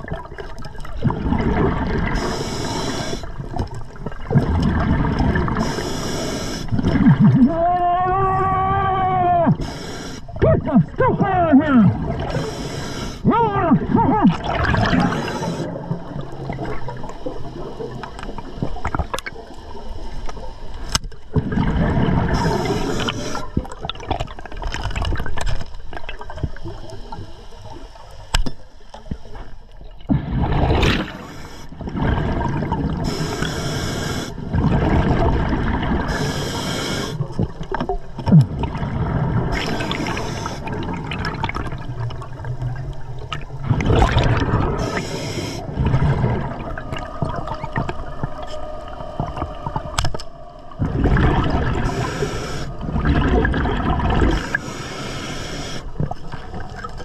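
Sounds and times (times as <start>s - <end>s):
gurgling exhale bubbles: 0.0s - 8.7s, 11.6s - 20.5s, 21.3s - 27.8s, 29.9s - 57.0s
regulator hiss on inhales: 2.1s - 3.4s, 5.6s - 6.7s, 9.6s - 10.4s, 12.3s - 13.2s, 15.1s - 15.8s, 22.4s - 23.5s, 31.1s - 31.8s, 33.0s - 34.4s, 36.1s - 37.3s, 39.6s - 40.8s, 44.8s - 45.8s, 51.8s - 52.8s, 54.4s - 56.1s.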